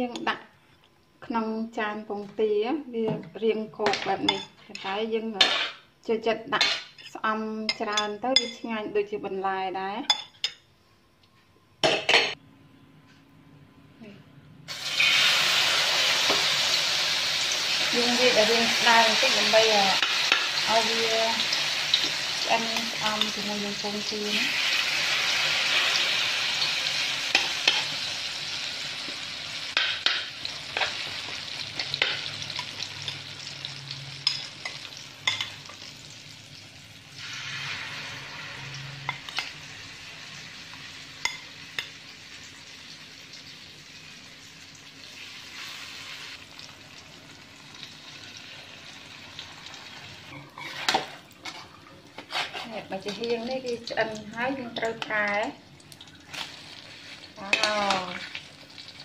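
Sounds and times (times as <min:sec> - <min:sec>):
leaves sizzling in hot oil: 0:14.7 - 0:51.3, 0:52.4 - 0:59.0
spoon scraping a wok: 0:37.2 - 0:39.6, 0:50.3 - 0:53.3.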